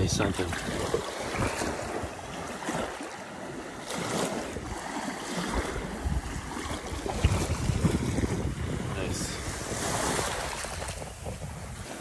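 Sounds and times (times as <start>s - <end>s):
small waves washing on sand: 0.0s - 12.0s
wind on microphone: 0.0s - 12.0s.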